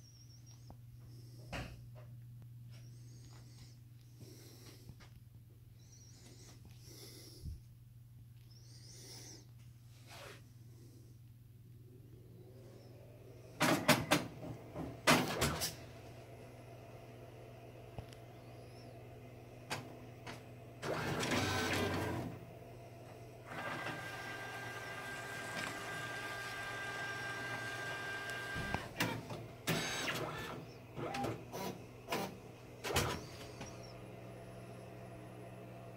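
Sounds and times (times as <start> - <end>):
label printer whirring: 13.6 - 15.8, 19.6 - 35.9.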